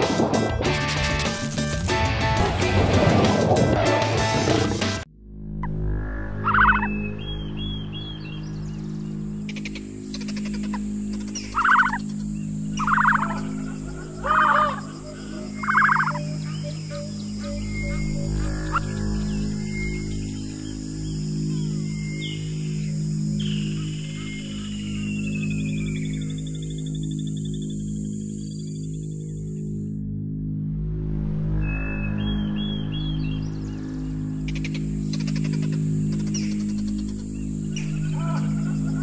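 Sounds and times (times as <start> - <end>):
low music drone: 0.0 - 39.0
rattling animal call: 10.2 - 12.2, 12.8 - 19.1
high tone gliding downward: 10.7 - 26.4.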